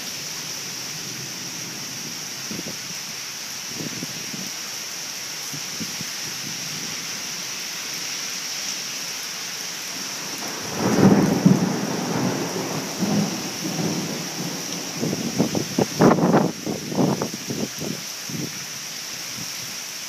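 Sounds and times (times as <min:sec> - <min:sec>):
heavy rain falling: 0:00.0 - 0:20.0
thunder rumbling: 0:10.2 - 0:17.2.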